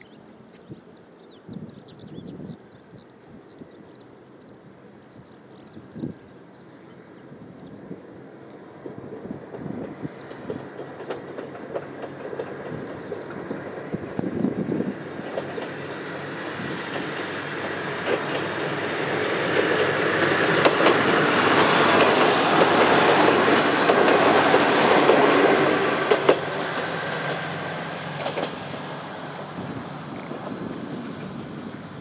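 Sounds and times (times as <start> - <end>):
diesel railcar passing: 2.5 - 32.0
wheels clacking over rail joints: 8.8 - 14.4, 15.1 - 29.0.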